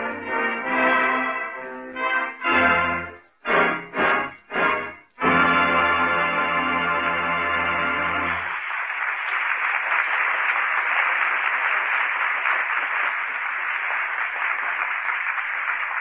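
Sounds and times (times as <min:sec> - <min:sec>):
sustained music: 0:00.0 - 0:08.5
audience applauding: 0:00.0 - 0:16.0.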